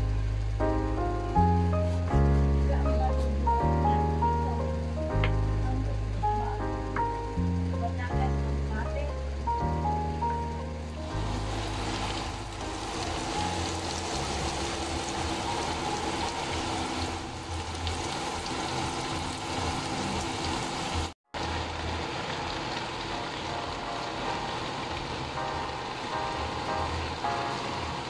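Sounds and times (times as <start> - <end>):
meat sizzling in hot oil: 0.0 - 28.0.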